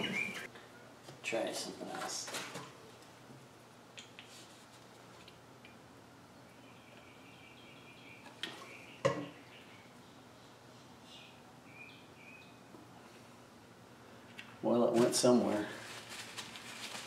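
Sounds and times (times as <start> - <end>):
faint bird chirps: 6.4 - 12.7.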